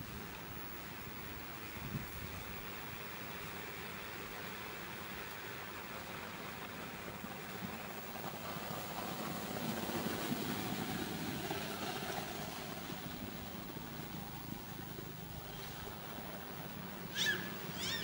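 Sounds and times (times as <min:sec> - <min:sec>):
distant engine humming: 0:06.0 - 0:18.0.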